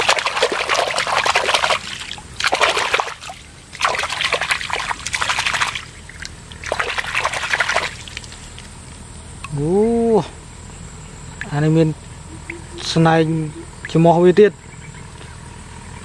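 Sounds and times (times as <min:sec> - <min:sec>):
hand splashing water: 0:00.0 - 0:08.4.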